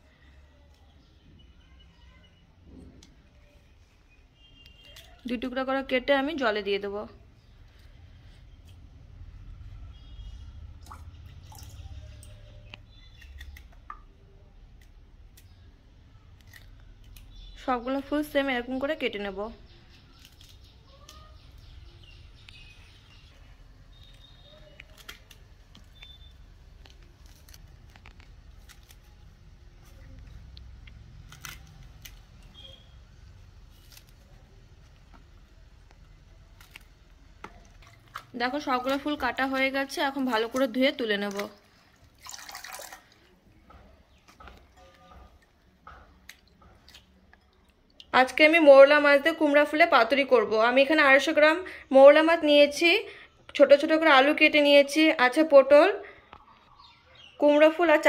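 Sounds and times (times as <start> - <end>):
drips and small splashes in water: 9.9 - 15.7, 36.6 - 48.2.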